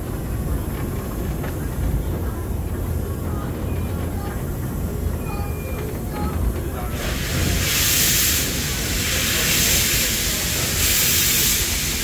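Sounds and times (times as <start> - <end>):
train rolling rumble: 0.0 - 12.0
steam locomotive hissing: 6.9 - 12.0.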